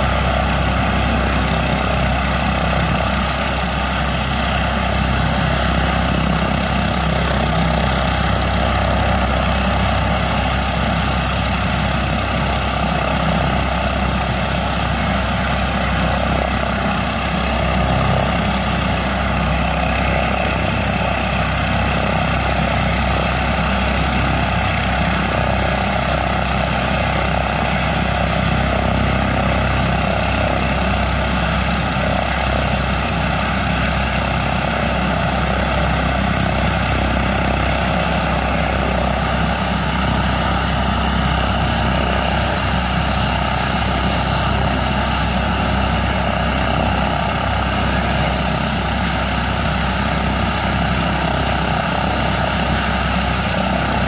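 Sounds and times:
helicopter rotor and engine noise: 0.0s - 54.0s
turbine engine whine: 0.0s - 54.0s.

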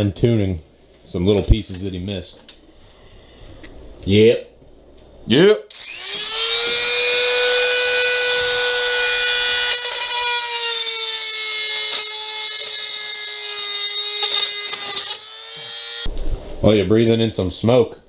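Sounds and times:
rotary tool cutting plastic: 5.7s - 16.1s.

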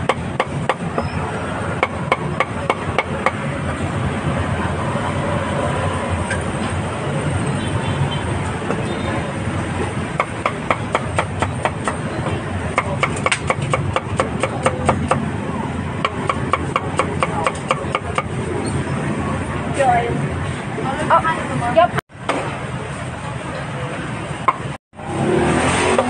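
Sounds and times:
cleaver chopping meat: 10.2s - 12.0s, 12.7s - 15.3s, 16.0s - 18.3s.

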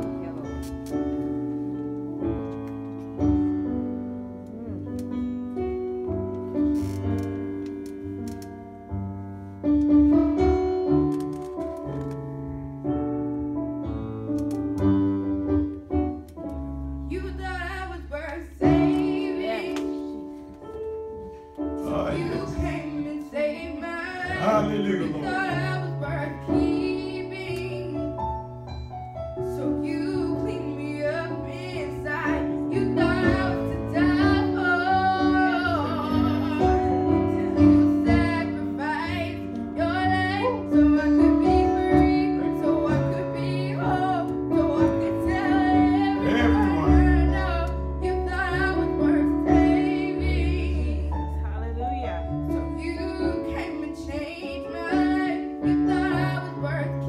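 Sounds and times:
slow piano chords: 0.0s - 57.0s
girl singing: 22.0s - 28.0s, 29.6s - 51.1s, 52.8s - 57.0s.

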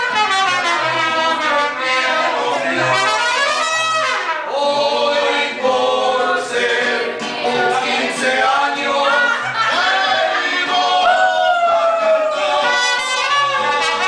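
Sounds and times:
trumpets: 0.0s - 4.8s, 9.1s - 14.0s
mariachi band playing: 0.0s - 14.0s
people singing: 1.3s - 3.7s, 4.3s - 14.0s.

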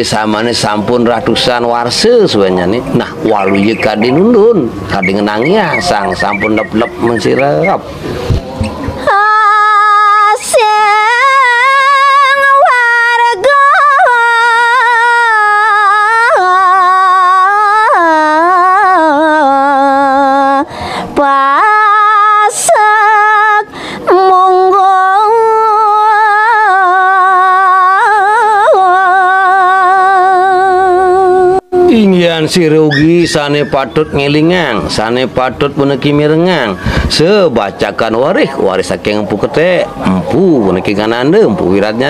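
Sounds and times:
woman singing unaccompanied: 8.8s - 31.9s.

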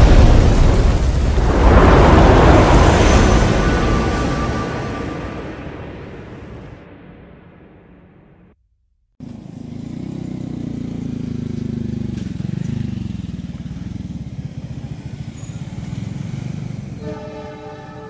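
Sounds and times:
locomotive horn chord: 2.4s - 6.7s, 17.0s - 18.0s
diesel locomotive engines rumbling: 9.2s - 18.0s.

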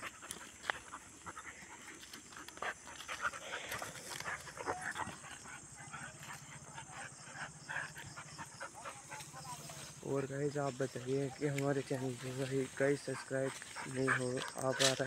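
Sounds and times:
dogs panting: 0.0s - 15.0s
rustles and footfalls on leaves: 9.2s - 15.0s.

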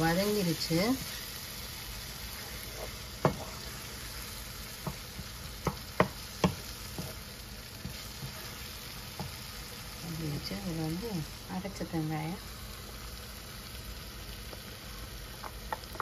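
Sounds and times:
onions sizzling in a pan: 0.0s - 16.0s
wooden spatula knocking a pan: 3.2s - 3.6s, 4.8s - 7.2s, 9.1s - 9.4s.

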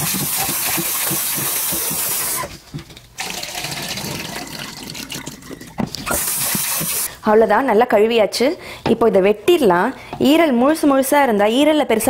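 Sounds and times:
tap water running into a pan: 0.0s - 2.5s, 3.2s - 7.1s
water splashing into a metal sink: 0.0s - 2.5s, 3.2s - 7.1s.

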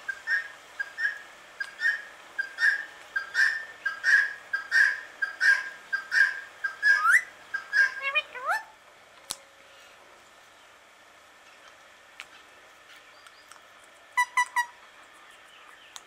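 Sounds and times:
parakeet whistled calls: 0.1s - 8.7s, 14.2s - 14.8s
parakeet rising whistle: 6.2s - 7.9s.

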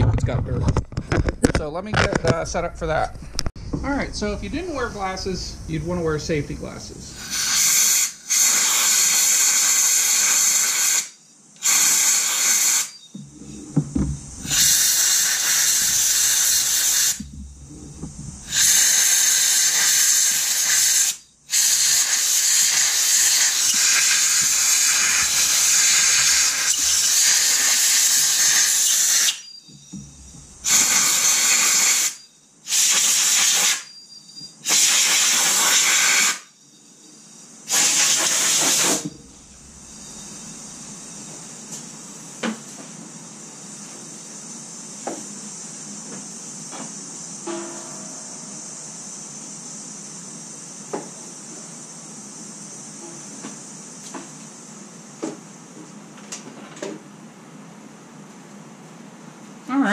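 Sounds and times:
compressed air blow gun hissing: 4.7s - 13.0s, 14.2s - 33.9s, 34.6s - 36.5s, 37.6s - 41.0s.

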